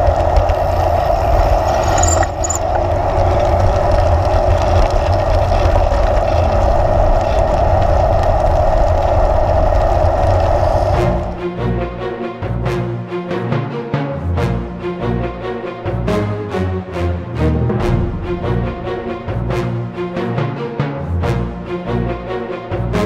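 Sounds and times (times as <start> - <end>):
wind and rolling noise: 0.0 - 12.9
music: 10.6 - 23.0.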